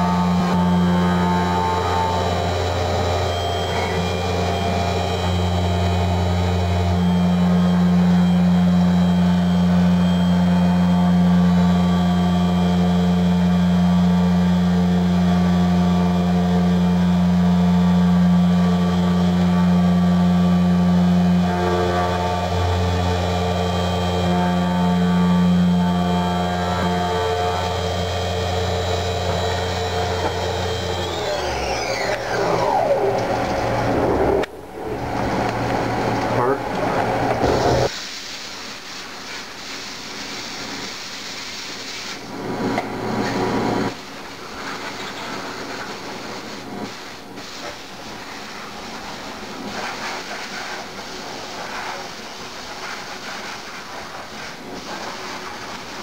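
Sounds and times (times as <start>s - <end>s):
end mill cutting metal tones: 0.0s - 37.9s
milling machine spindle hum: 0.0s - 37.9s, 42.2s - 47.4s
loud low rumble: 22.0s - 37.9s
hiss of running machinery: 37.4s - 56.0s.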